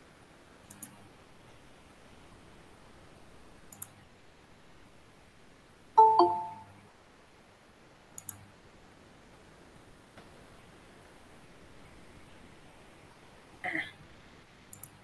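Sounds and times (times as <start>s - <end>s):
two-note notification chime: 6.0s - 6.7s.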